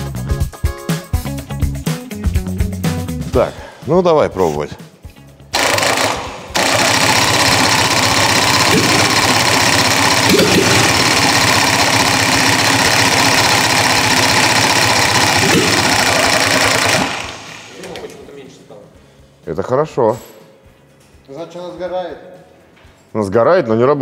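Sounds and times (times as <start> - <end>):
engine firing: 5.5 - 18.0
engine cranking on starter: 5.6 - 18.2.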